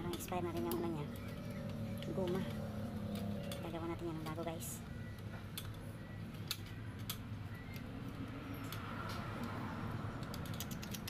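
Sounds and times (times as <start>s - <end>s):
small parts clicking: 5.0s - 11.0s.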